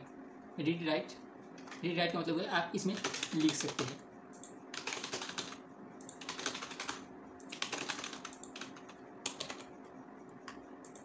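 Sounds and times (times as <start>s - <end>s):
fast keyboard typing: 2.8s - 9.8s, 10.4s - 11.0s.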